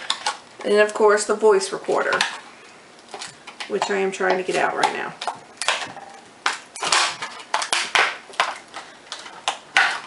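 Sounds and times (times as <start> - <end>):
plastic packaging crackling: 4.5 - 10.0.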